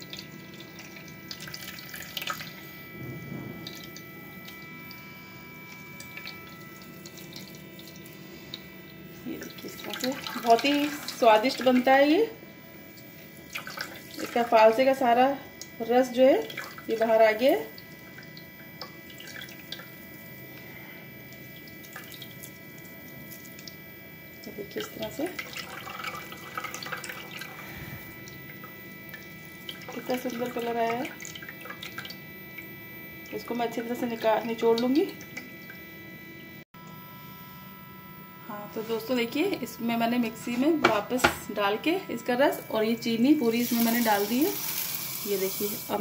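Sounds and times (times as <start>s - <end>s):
juice trickling into a bowl: 0.0s - 12.1s, 12.8s - 14.7s, 16.4s - 23.9s, 24.6s - 35.8s, 43.4s - 46.0s.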